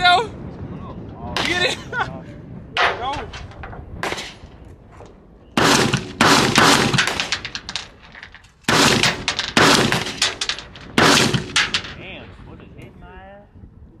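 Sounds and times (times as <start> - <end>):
gunshots echoing: 2.8 - 4.6, 5.6 - 12.4.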